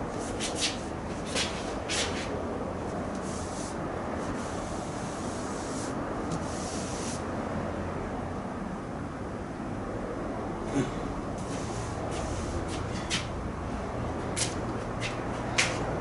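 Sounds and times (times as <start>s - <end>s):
steady background rumble: 0.0s - 16.0s
sandpaper rubbing on car panel: 0.2s - 2.3s, 3.2s - 7.2s.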